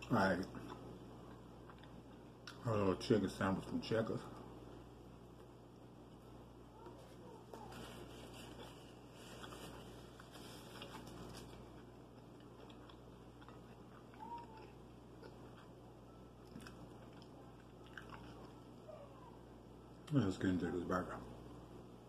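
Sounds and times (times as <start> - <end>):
soft chewing: 0.0 - 2.7, 4.2 - 19.4
low electrical hum: 0.0 - 22.0
paper napkin rustling: 7.0 - 11.6.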